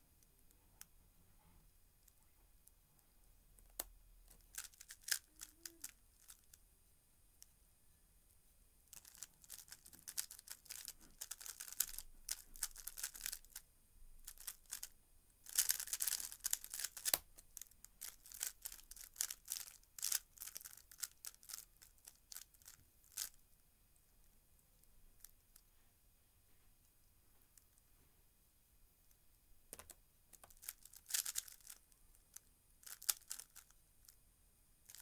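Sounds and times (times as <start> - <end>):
puzzle cube layers clicking: 15.5 - 21.6, 29.7 - 31.8.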